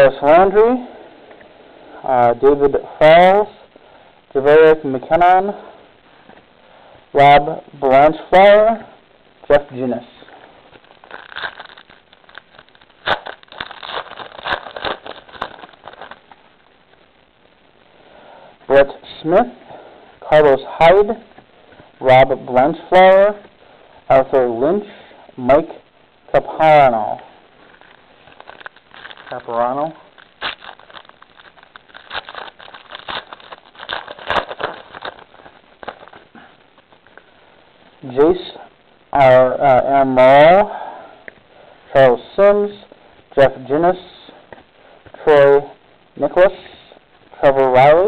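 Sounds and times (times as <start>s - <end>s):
foil wrappers crinkling: 10.7s - 16.7s, 27.6s - 37.3s
trading cards clicking and rustling: 11.0s - 16.2s, 30.2s - 36.2s.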